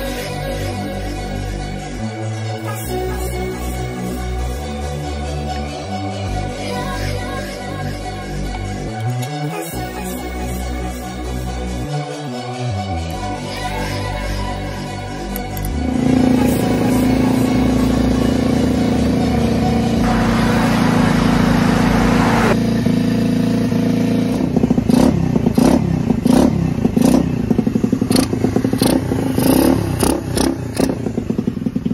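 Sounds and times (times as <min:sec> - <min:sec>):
dirt bike engine revving: 0:15.7 - 0:31.9.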